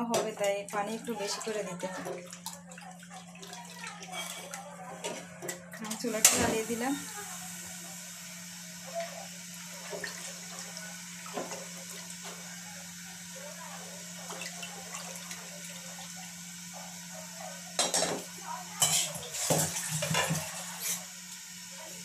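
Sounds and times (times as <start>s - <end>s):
spatula clattering against pot: 18.8s - 20.3s.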